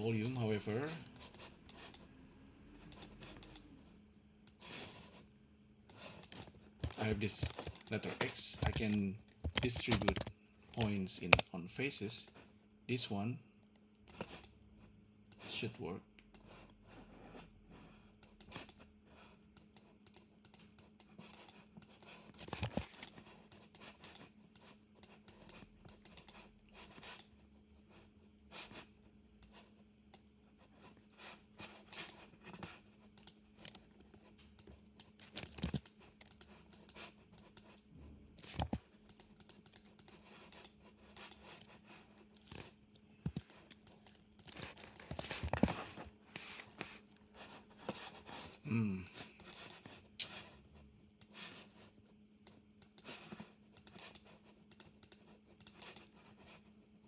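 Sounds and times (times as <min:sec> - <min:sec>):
keyboard and mouse clicking: 0:00.0 - 0:02.1, 0:02.8 - 0:03.7, 0:05.9 - 0:11.5, 0:18.2 - 0:18.8, 0:19.5 - 0:26.4, 0:33.1 - 0:33.8, 0:34.4 - 0:37.8, 0:38.4 - 0:41.8, 0:42.4 - 0:45.3, 0:52.4 - 0:56.2
faint steady hum: 0:00.0 - 0:57.0.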